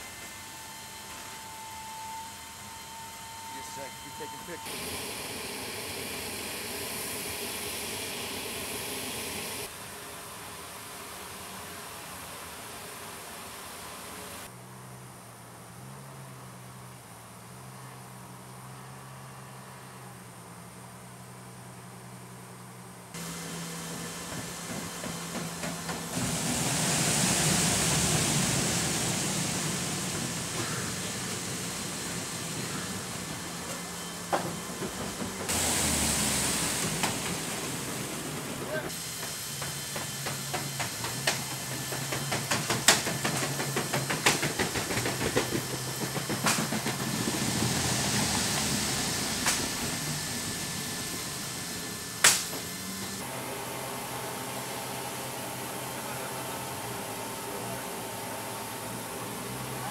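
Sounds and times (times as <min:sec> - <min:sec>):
aircraft engine hum: 0:00.0 - 0:14.5, 0:22.8 - 0:59.9
loud rushing jet noise: 0:03.6 - 0:09.7, 0:23.2 - 0:53.3
rollers rattling and clicking: 0:39.8 - 0:47.8.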